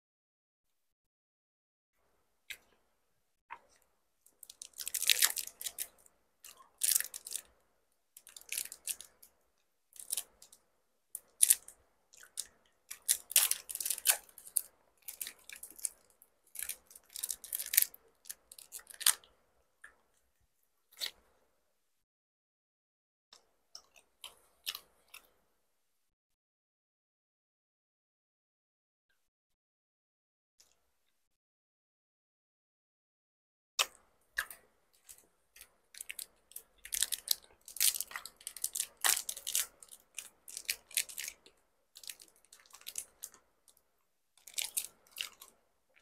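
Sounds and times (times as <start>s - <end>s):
person chewing: 11.2s - 19.2s, 36.0s - 43.4s, 44.4s - 46.0s.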